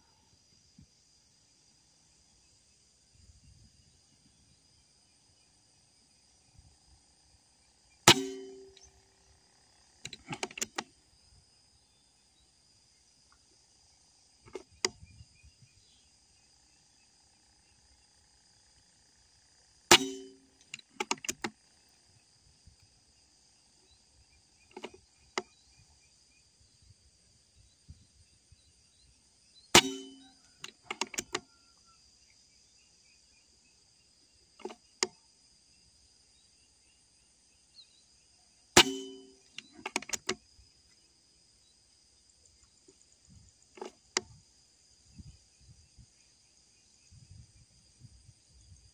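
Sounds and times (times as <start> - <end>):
air rifle shots: 8.1 - 8.9, 19.9 - 20.4, 29.7 - 30.2, 38.8 - 39.3.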